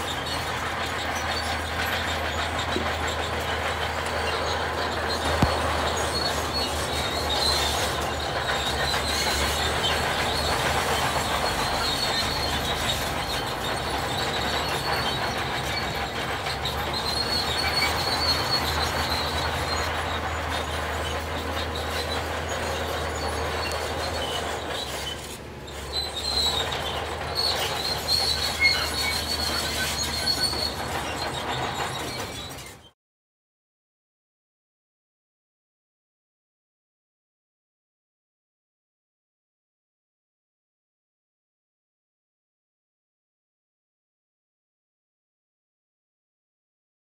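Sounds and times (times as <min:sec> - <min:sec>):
diesel engine drone: 0:00.0 - 0:32.8
metallic track squeal and clatter: 0:00.0 - 0:33.0.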